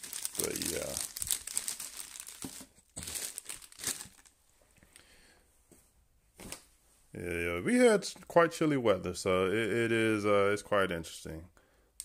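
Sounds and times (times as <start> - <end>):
plastic bag crinkling: 0.0 - 4.4.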